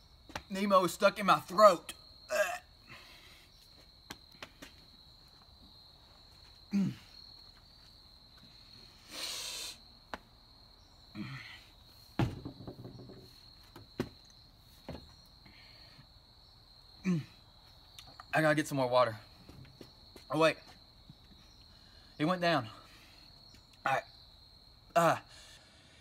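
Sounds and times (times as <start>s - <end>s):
man grunting and coughing: 2.3s - 2.7s, 6.7s - 7.1s, 17.0s - 17.4s.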